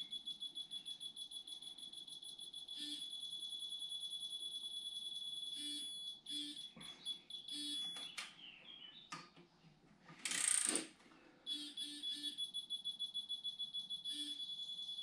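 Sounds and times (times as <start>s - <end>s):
pulsing high-pitched electronic beep: 0.0s - 8.1s, 11.5s - 15.0s
torque wrench ratchet clicking: 10.3s - 10.8s.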